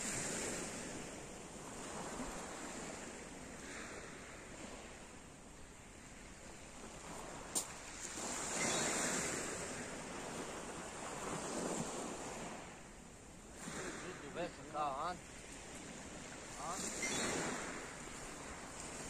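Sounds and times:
waves washing on pebble beach: 0.0s - 5.0s, 5.9s - 19.0s
wind on microphone: 5.9s - 19.0s.

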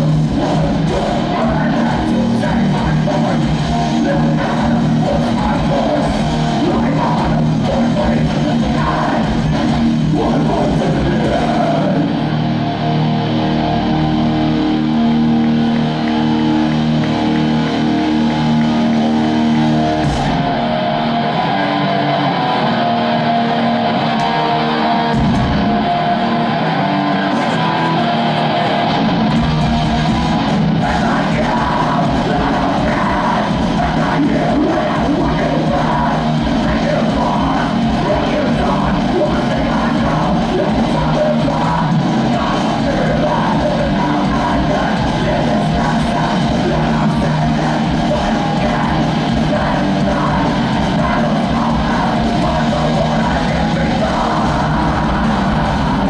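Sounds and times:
drums: 0.0s - 56.0s
electric guitar riffing: 0.0s - 56.0s
heavy metal band playing live: 0.0s - 56.0s
shouted vocals: 0.0s - 56.0s.

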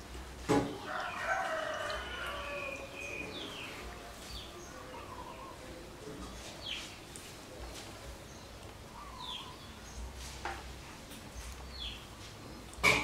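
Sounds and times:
rooster crowing: 0.8s - 3.2s.

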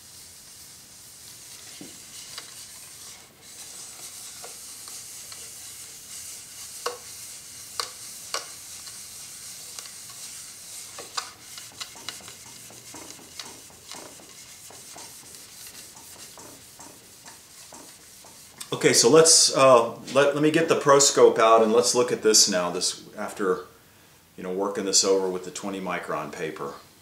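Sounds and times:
blade rubbing on abrasive film: 0.0s - 18.7s.

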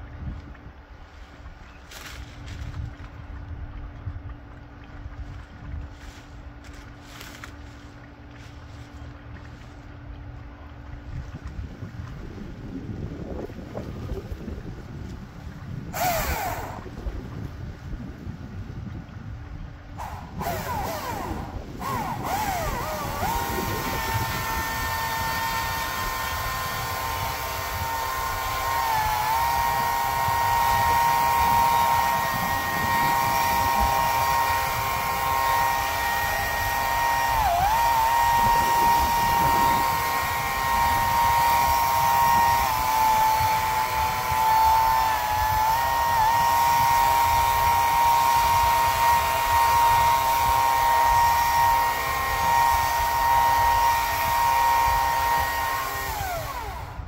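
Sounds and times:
motor-driven machine whining: 16.0s - 17.0s, 20.0s - 57.0s.

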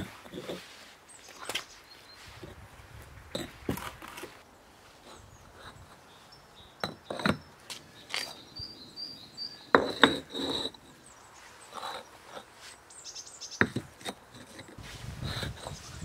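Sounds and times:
bricks knocking together: 6.8s - 7.5s, 9.7s - 10.8s, 13.6s - 14.8s.

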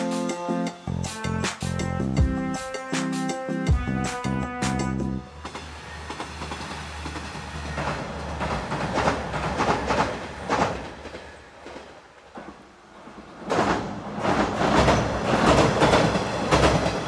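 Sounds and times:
diesel railcar engine hum: 0.0s - 2.7s, 3.7s - 13.4s
train wheels clacking on bridge: 5.3s - 17.0s.

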